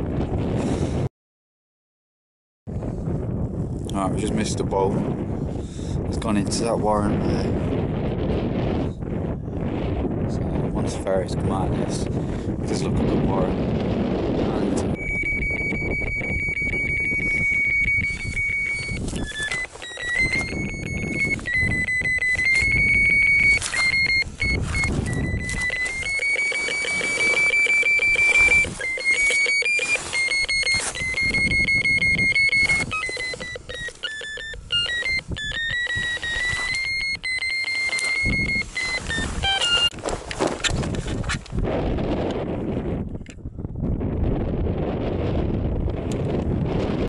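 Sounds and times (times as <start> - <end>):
high electronic tone: 14.9 - 40.0
fast electronic ticking: 15.0 - 39.9.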